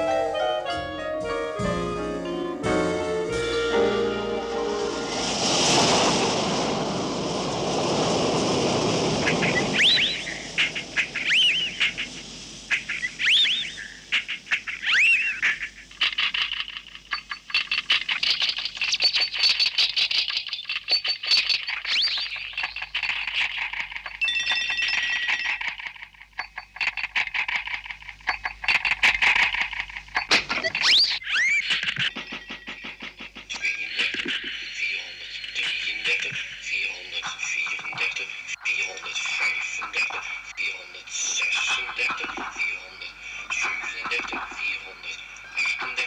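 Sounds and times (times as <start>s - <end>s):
furnace burner rushing: 3.5s - 11.3s
glass and metal squeaking: 30.2s - 33.3s.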